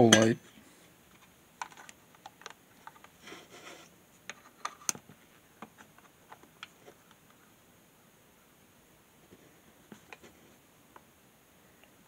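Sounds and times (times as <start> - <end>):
rustling scrape: 3.2 - 4.8.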